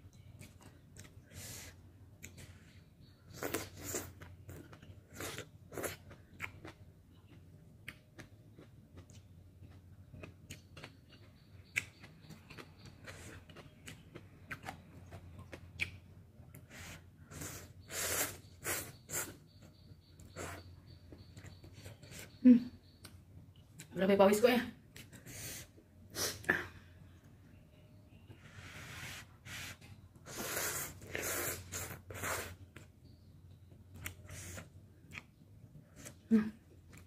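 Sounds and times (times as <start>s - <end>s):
wet chewing: 3.3s - 16.7s.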